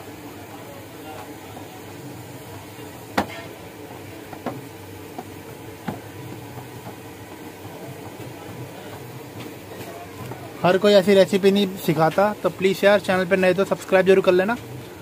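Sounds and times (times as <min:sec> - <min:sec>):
dough kneaded on metal sheet: 0:00.2 - 0:15.0.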